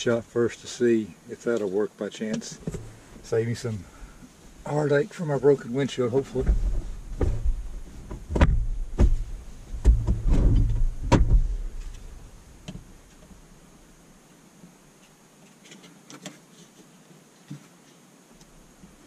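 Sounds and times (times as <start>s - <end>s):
thumps and rustling in vehicle cab: 2.6s - 3.3s, 6.3s - 13.3s.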